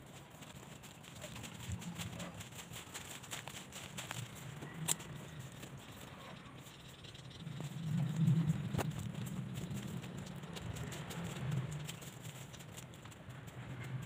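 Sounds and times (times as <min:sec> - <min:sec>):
footsteps through grass and leaves: 0:00.0 - 0:13.2
low rumble: 0:06.7 - 0:11.9.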